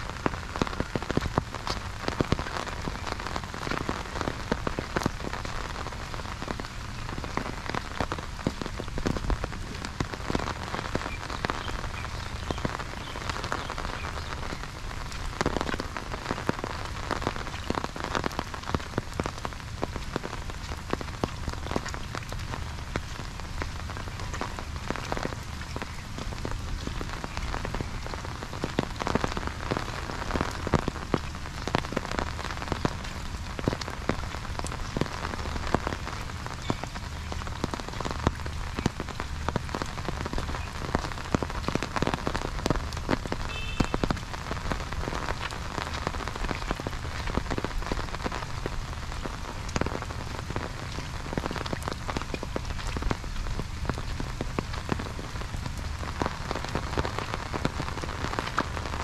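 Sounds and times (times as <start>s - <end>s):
rain on umbrella: 0.0s - 59.0s.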